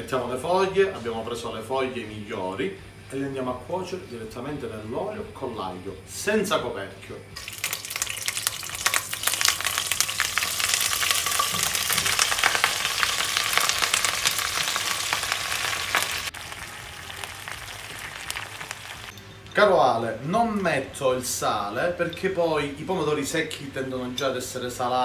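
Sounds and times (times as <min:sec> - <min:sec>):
greens sizzling in hot oil: 0:07.4 - 0:19.2.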